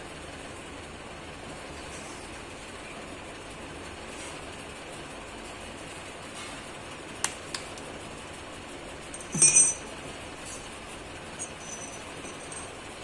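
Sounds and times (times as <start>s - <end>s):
small metal clinks and taps: 9.1s - 9.9s, 11.4s - 12.8s.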